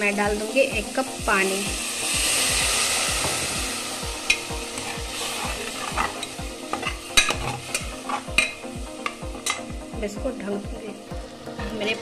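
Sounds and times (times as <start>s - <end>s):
water sizzling in hot pot: 0.0s - 12.0s
ladle scraping and knocking pot: 4.3s - 9.7s.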